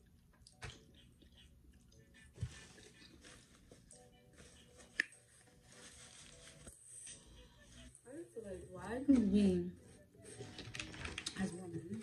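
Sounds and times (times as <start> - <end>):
faint chewing: 0.0 - 5.3.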